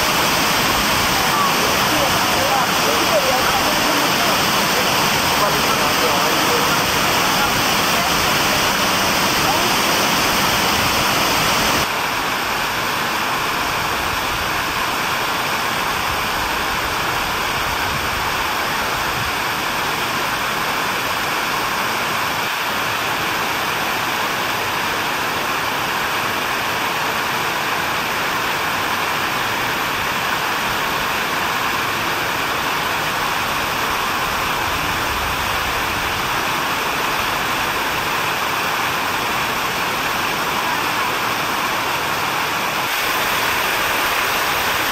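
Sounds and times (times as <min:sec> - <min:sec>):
falling water rushing: 0:00.0 - 0:44.9.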